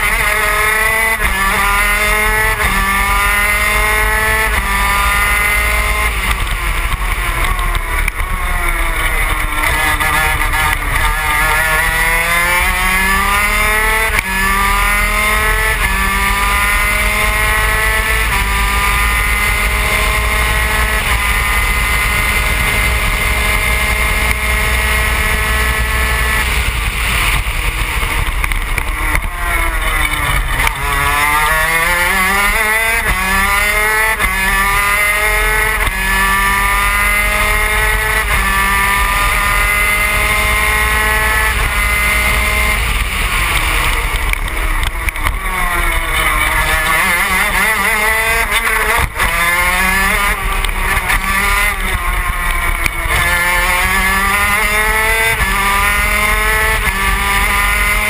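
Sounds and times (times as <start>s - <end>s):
two-stroke racing engine at full throttle: 0.0s - 58.0s.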